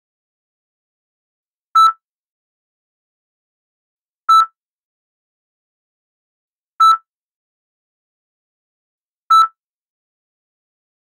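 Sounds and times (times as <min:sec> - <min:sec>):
heart monitor beeping: 0:04.3 - 0:04.6, 0:09.3 - 0:09.6.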